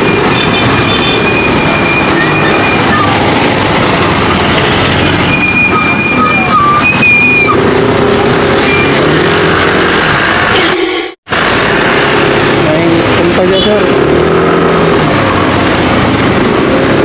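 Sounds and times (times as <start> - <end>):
wind and road noise: 0.0 - 10.6, 11.3 - 17.0
high thin squeal: 0.8 - 3.2, 5.2 - 7.6.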